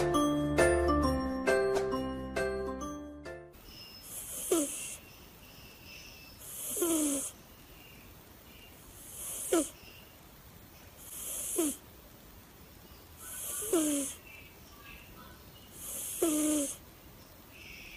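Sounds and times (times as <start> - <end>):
cat snoring: 4.0 - 5.1, 6.4 - 7.4, 8.9 - 9.8, 11.0 - 11.9, 13.2 - 14.2, 15.7 - 16.8.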